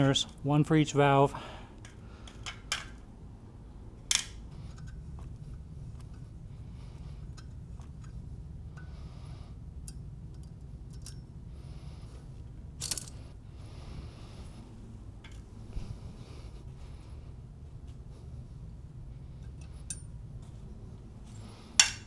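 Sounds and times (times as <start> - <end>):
steady low hum: 0.0 - 22.0
metallic clicks of hand tools: 4.1 - 5.0, 12.8 - 13.2, 21.8 - 22.0.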